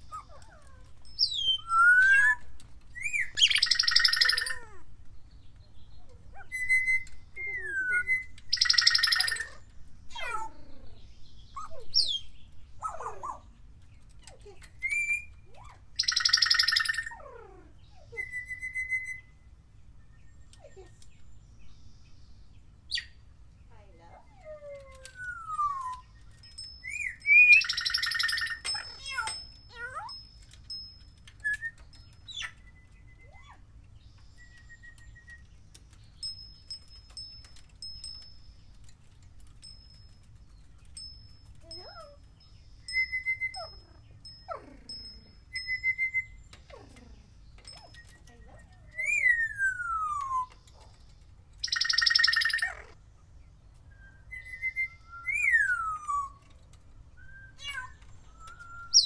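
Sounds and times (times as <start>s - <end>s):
parrot chirp: 3.0s - 4.8s, 5.9s - 13.5s, 14.7s - 19.5s, 24.2s - 35.5s, 40.9s - 51.0s, 51.6s - 53.0s, 53.9s - 56.5s, 57.1s - 59.0s
parrot buzzy trill: 26.9s - 30.2s
parrot whistling: 42.9s - 43.7s.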